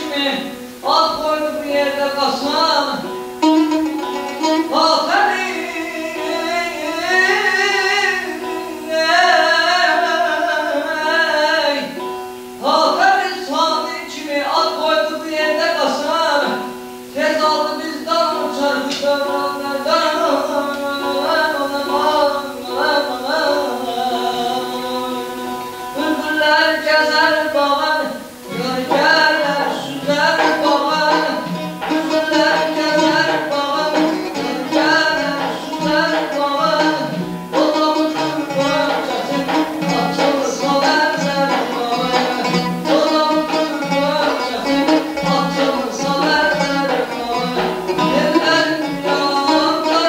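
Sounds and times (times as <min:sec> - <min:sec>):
plucked lute ornamented melody: 0:00.0 - 0:50.0
frame drum: 0:28.6 - 0:50.0.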